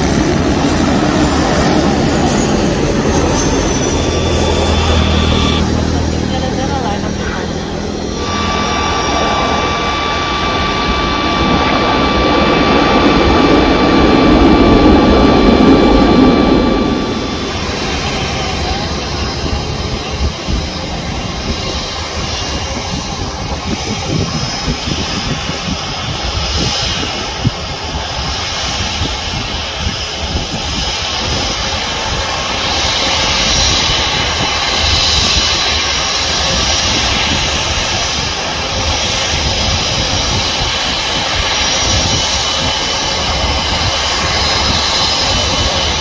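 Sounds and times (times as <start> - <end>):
jet engines rumble and hiss: 0.0 - 46.0.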